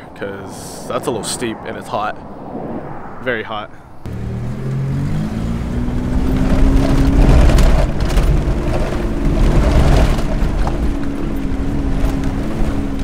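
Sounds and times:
car engine rumbling while driving: 3.9s - 13.0s
knocks and rattles: 6.0s - 13.0s.

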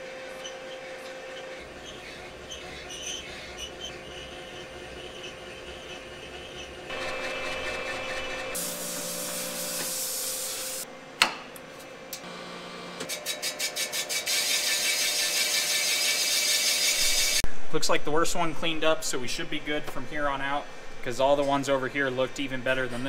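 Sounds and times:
boring machine motor hum: 0.0s - 13.1s.

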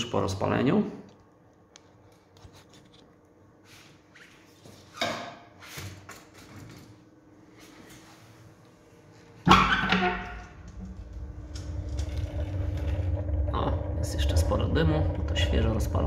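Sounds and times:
burner humming: 10.3s - 16.0s.

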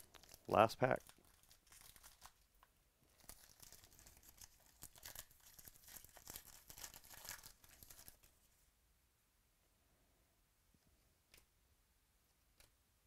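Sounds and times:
foil wrapper crinkling: 0.0s - 2.5s, 3.1s - 8.3s.

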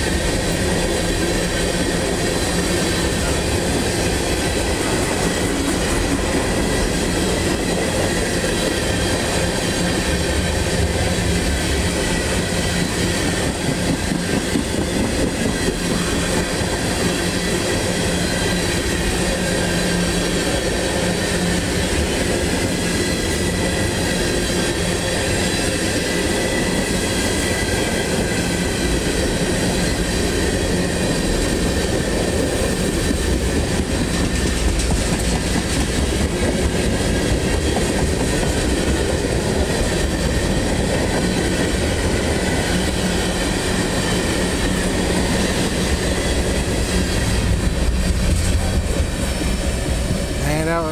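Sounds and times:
train wheels rumbling on rails: 0.0s - 50.9s.

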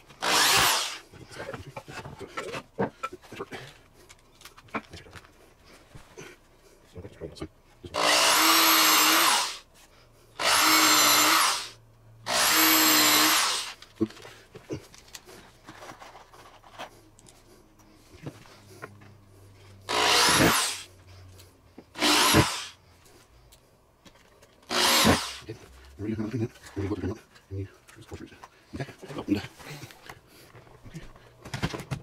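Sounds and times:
power drill drilling into wood: 0.2s - 1.0s, 8.0s - 9.6s, 10.4s - 13.8s, 19.9s - 20.9s, 22.0s - 22.8s, 24.7s - 25.4s.

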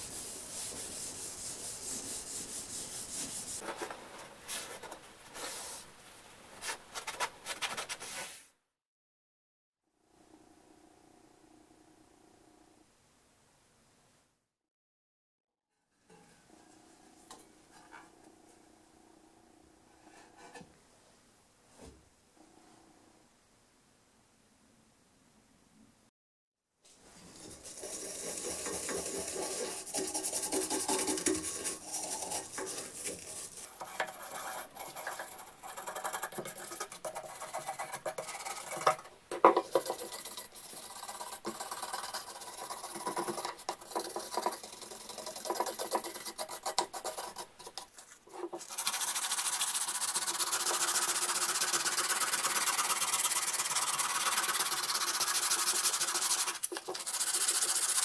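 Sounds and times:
sandpaper sanding wood: 0.0s - 3.6s, 27.4s - 39.0s, 39.7s - 47.8s, 48.6s - 58.0s
toothbrush scrubbing wood: 0.0s - 3.6s, 27.2s - 58.0s.

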